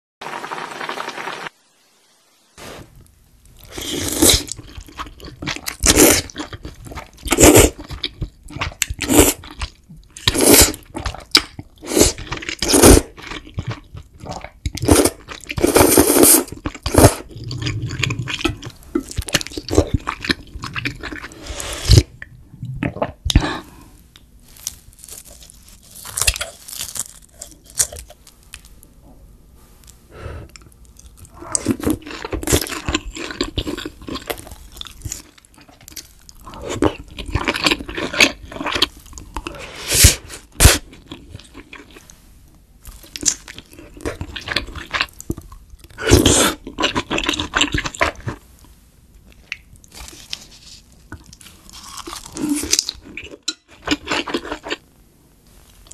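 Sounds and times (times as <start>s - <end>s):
chewing and biting food: 51.1s - 54.8s.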